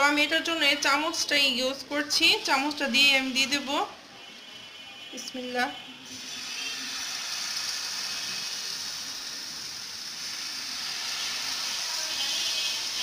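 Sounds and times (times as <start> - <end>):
batter sizzling in hot oil: 6.0 - 13.0.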